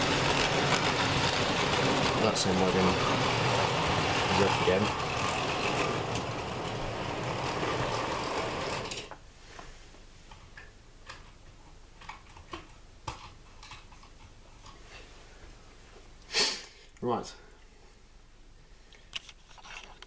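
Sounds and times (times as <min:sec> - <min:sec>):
model train whirring rattle: 0:00.0 - 0:09.1.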